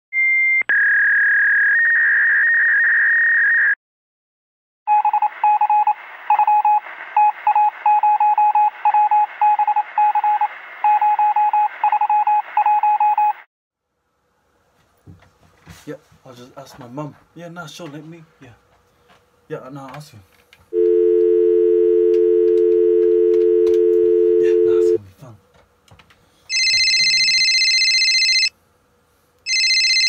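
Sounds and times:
telephone ringer beeping: 26.5s - 28.5s, 29.5s - 30.0s.

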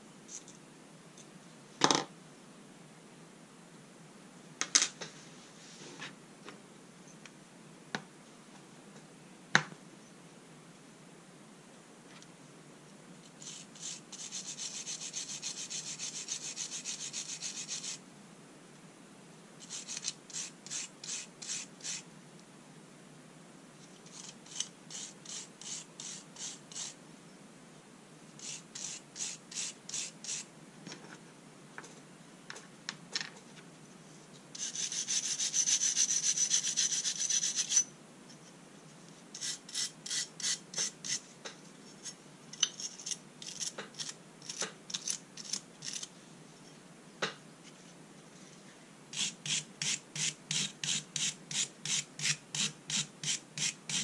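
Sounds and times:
wire brush scrubbing metal: 13.4s - 18.0s, 34.6s - 37.8s.

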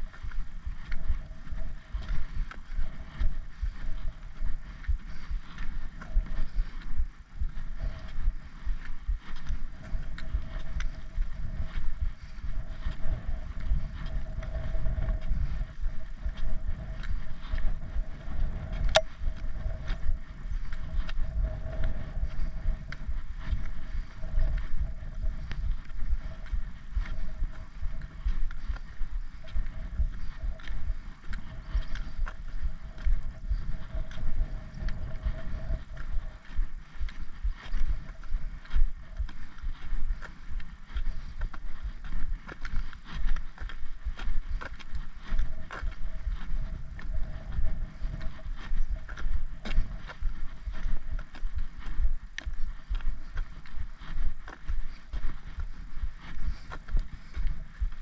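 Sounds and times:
footsteps on tarmac: 0.0s - 58.0s
wind rumbling on microphone: 0.0s - 58.0s
trekking pole clicking on tarmac: 16.3s - 25.4s.

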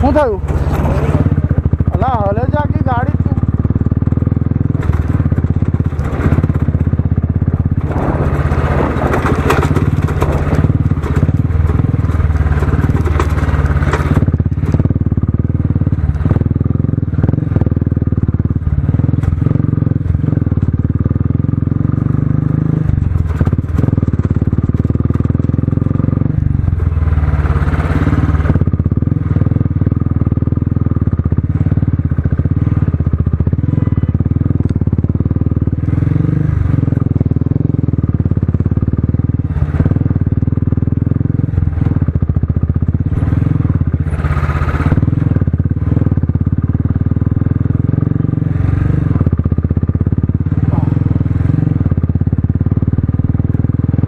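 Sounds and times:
rattling: 0.0s - 2.0s, 4.1s - 14.7s
motorcycle engine running: 0.0s - 54.0s.

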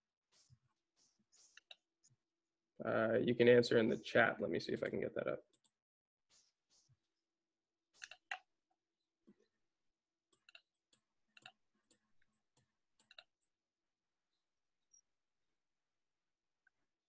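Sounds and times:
computer mouse clicks: 8.0s - 8.5s, 10.3s - 12.0s, 12.6s - 13.5s.

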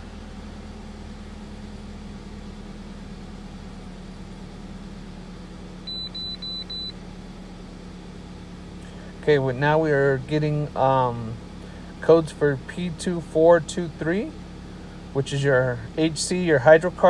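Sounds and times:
car engine idling: 0.0s - 17.0s
quick high beeps: 5.9s - 7.0s.

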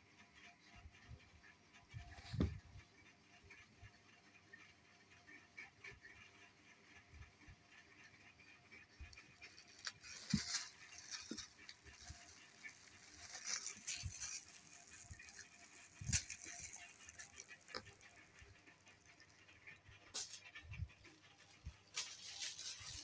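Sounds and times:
plastic bag crinkling: 9.4s - 19.4s, 20.2s - 20.5s, 21.4s - 23.0s.

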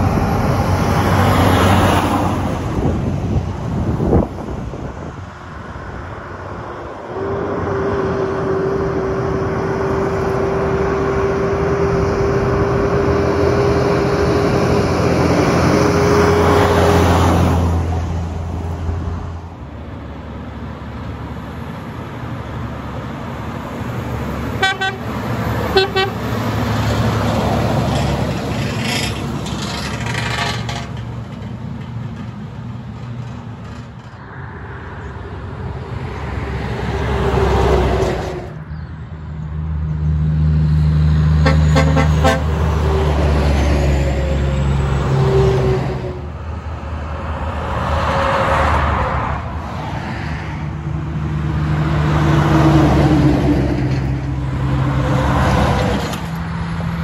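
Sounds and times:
truck diesel engines passing: 0.0s - 57.0s
truck horn toots: 7.1s - 12.8s, 24.6s - 26.3s, 41.4s - 43.2s.

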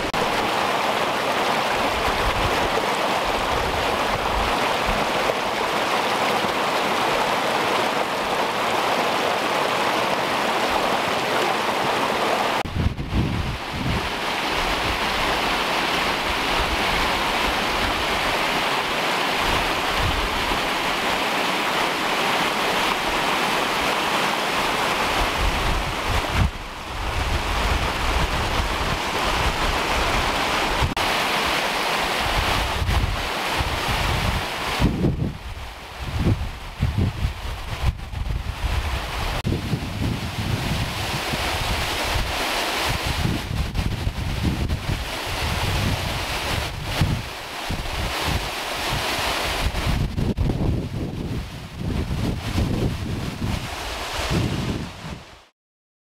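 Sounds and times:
stream rushing over rocks: 0.0s - 55.5s
wind buffeting microphone: 12.6s - 15.6s, 25.0s - 31.0s, 32.2s - 55.3s.

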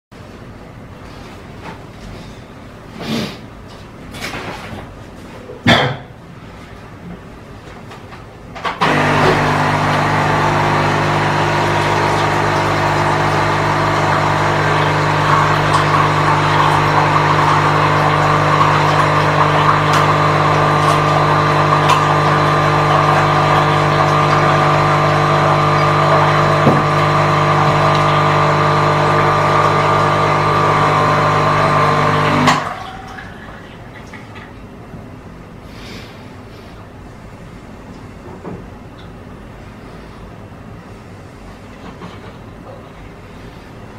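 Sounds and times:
coffee machine pump humming: 8.8s - 34.4s.

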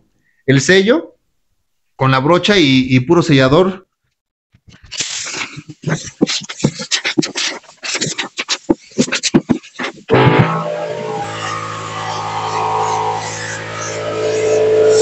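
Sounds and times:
paint spray gun hissing: 11.2s - 15.0s.

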